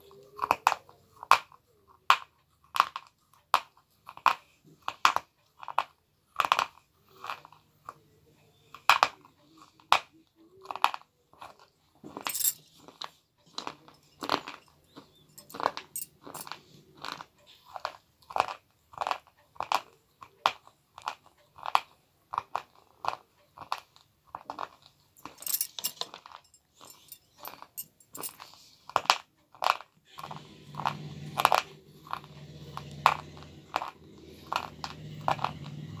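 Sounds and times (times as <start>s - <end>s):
gritty crunches of chewing: 12.8s - 19.9s, 28.4s - 36.0s.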